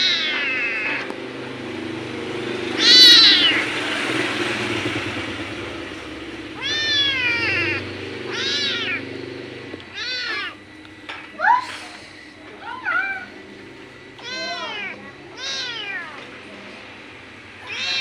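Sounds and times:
kitten meowing: 0:00.0 - 0:01.1, 0:02.8 - 0:03.7, 0:06.6 - 0:09.1, 0:09.9 - 0:10.6, 0:14.2 - 0:16.3, 0:17.6 - 0:18.0.

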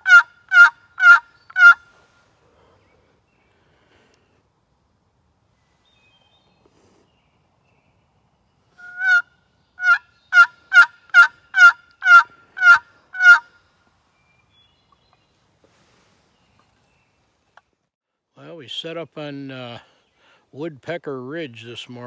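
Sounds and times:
turkey call hen yelps: 0:00.0 - 0:01.8, 0:08.8 - 0:13.5.

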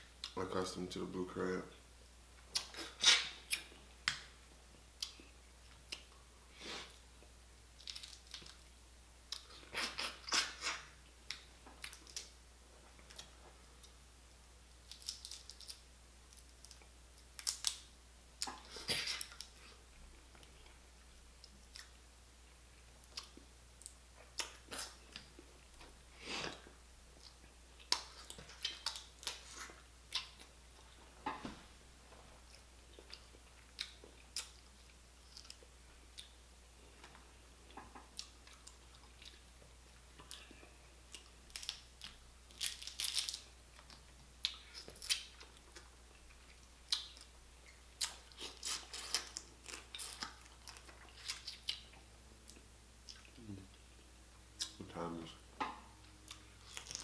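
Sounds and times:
chewing: 0:32.4 - 0:54.0.

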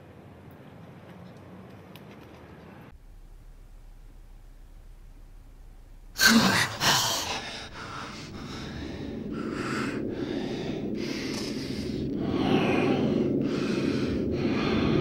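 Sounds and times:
low drone: 0:02.9 - 0:15.0
heavy rasping breaths: 0:06.2 - 0:15.0.

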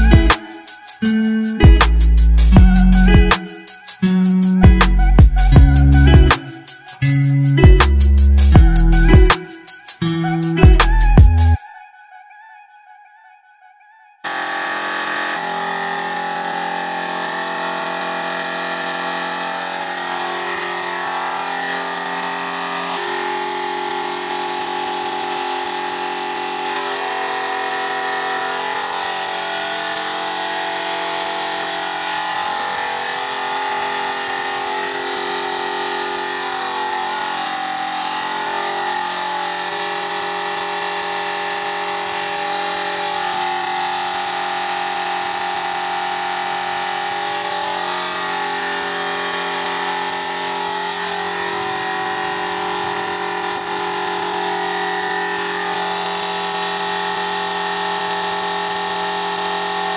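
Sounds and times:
paint spray gun hissing: 0:14.3 - 0:21.8, 0:22.4 - 0:57.6
machine hum: 0:14.3 - 0:36.9.

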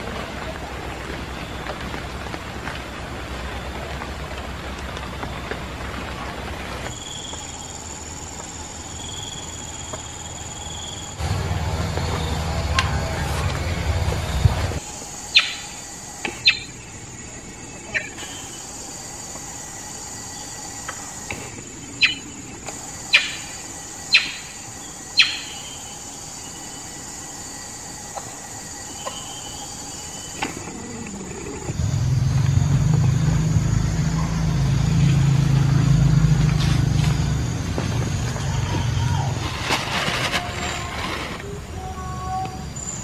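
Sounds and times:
forest insects buzzing: 0:00.0 - 0:43.0
low engine-like drone: 0:07.7 - 0:18.9, 0:27.8 - 0:43.0.

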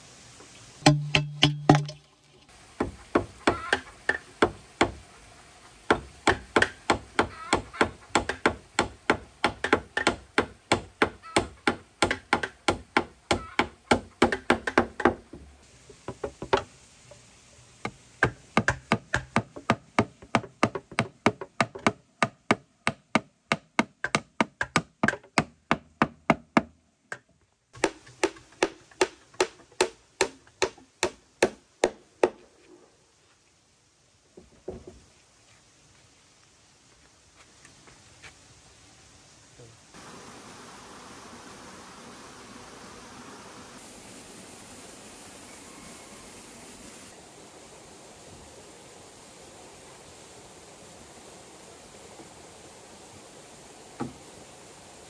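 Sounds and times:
hammer driving nails into wood: 0:05.9 - 0:15.4, 0:18.2 - 0:32.4.

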